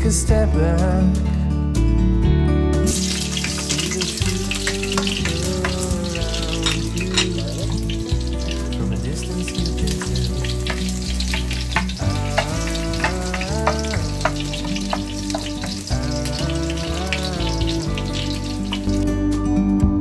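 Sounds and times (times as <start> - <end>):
garlic sizzling in oil: 2.9 - 19.0
oil popping: 2.9 - 19.0
spatula stirring in pan: 3.0 - 19.0.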